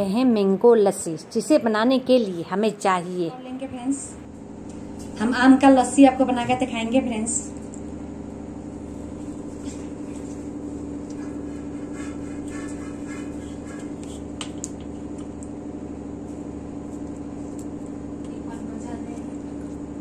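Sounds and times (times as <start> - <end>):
mechanical hum: 0.0 - 20.0
knife scraping mango skin: 9.0 - 14.3.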